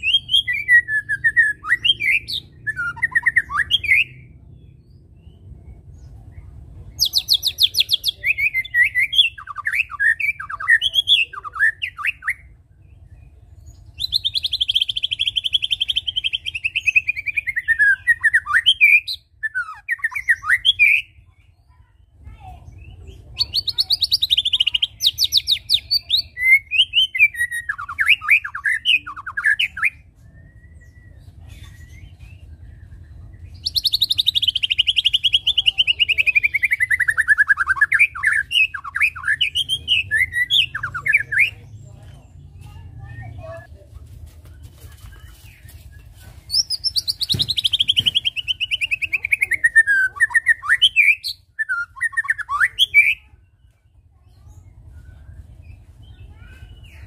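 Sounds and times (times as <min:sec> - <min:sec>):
bird singing whistled phrases: 0:00.0 - 0:04.3, 0:07.0 - 0:12.5, 0:13.9 - 0:21.2, 0:22.8 - 0:32.5, 0:33.5 - 0:41.6, 0:46.5 - 0:53.2
bird chattering trills: 0:06.9 - 0:12.5, 0:13.7 - 0:30.1, 0:45.0 - 0:57.0.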